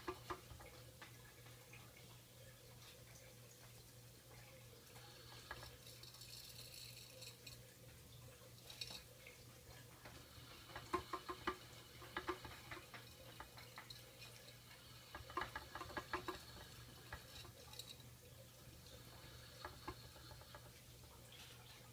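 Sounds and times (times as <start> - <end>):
plastic hamster wheel rattling: 0.0 - 1.6, 5.0 - 7.6, 8.6 - 9.1, 9.7 - 18.2, 18.8 - 20.8.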